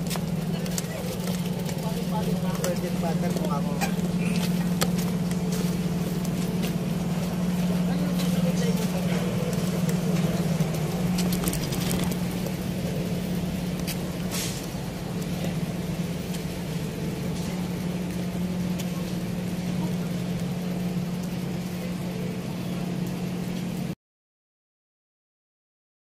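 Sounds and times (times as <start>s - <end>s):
machine humming: 0.0s - 24.0s
faint clicks and rustles: 9.0s - 12.7s.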